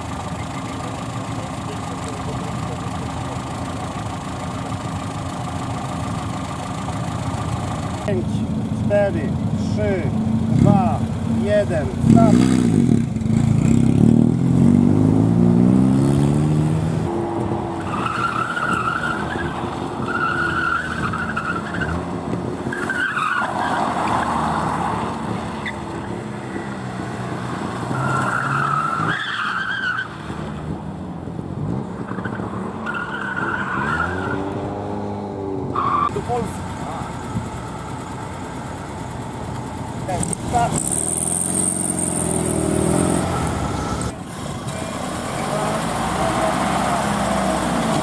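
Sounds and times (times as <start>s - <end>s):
car engine revving: 0.0s - 48.0s
tyres squealing: 17.7s - 25.9s, 27.9s - 30.2s.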